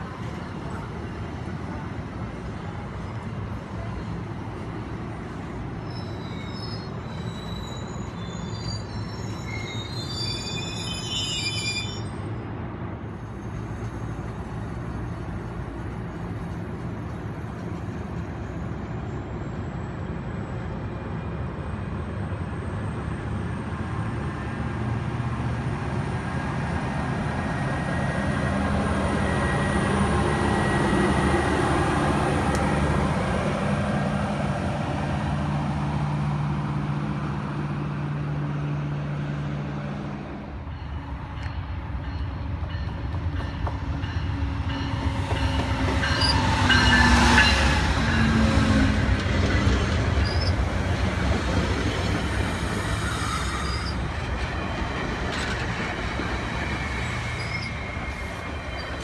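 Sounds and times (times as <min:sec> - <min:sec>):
diesel locomotive engine hum: 0:00.0 - 0:59.0
high wheel squeal: 0:05.8 - 0:12.3, 0:44.7 - 0:48.4, 0:50.1 - 0:50.7, 0:52.5 - 0:54.1, 0:56.3 - 0:59.0.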